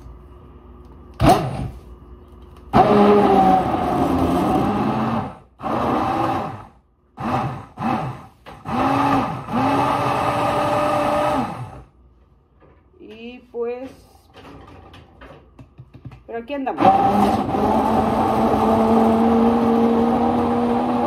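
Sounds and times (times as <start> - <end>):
hand blender running: 2.8 - 11.8, 16.8 - 21.0.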